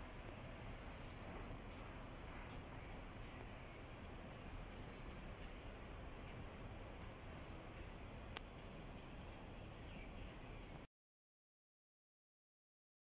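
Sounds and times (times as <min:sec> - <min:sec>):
insect chirping: 0:00.0 - 0:10.2.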